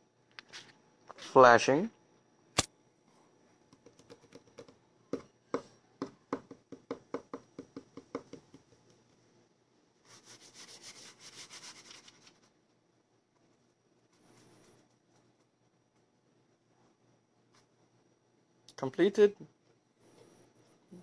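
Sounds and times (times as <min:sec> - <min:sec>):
rubbing: 0:10.1 - 0:12.5.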